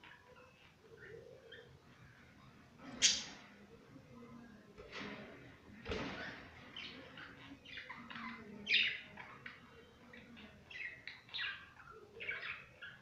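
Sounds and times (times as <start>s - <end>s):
budgerigars chirping and warbling: 6.6s - 13.0s.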